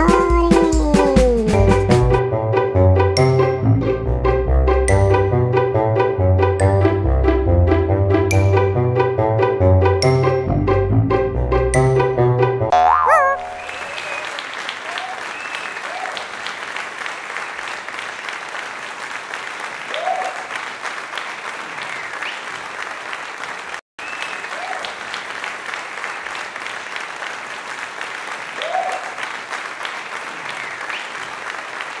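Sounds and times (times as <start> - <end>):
crowd applause: 13.0 - 32.0
cheers and whoops: 13.1 - 16.3, 19.9 - 20.5, 24.2 - 25.0, 28.6 - 29.3.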